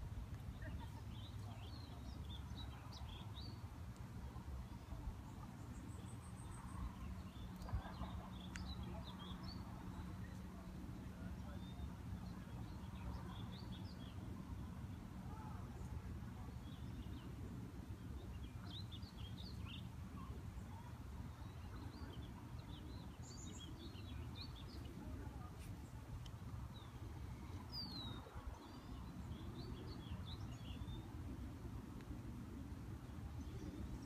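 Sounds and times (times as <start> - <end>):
small birds chirping: 15.3 - 32.2.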